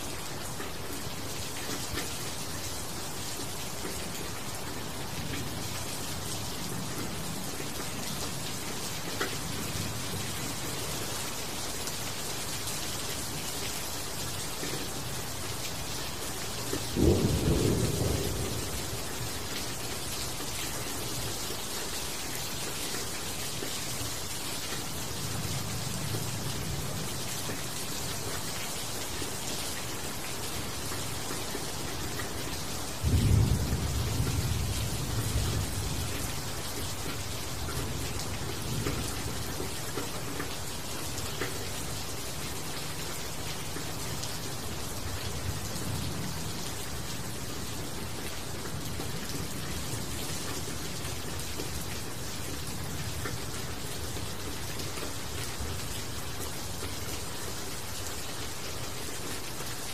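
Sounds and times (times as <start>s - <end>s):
rain falling on leaves: 0.0s - 59.9s.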